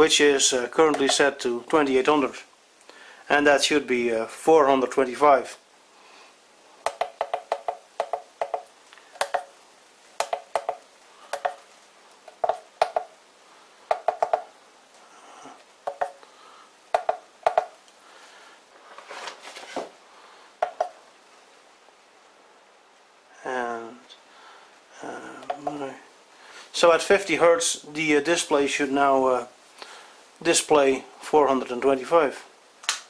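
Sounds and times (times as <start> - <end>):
keypad buttons clicking: 9.2 - 9.5
soft rustle: 17.8 - 20.5.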